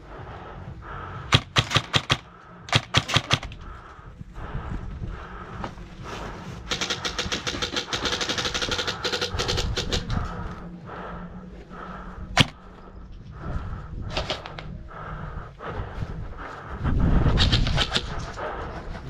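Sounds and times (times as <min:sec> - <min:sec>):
airsoft guns firing: 0:01.3 - 0:03.6, 0:06.7 - 0:10.1, 0:12.4 - 0:12.6.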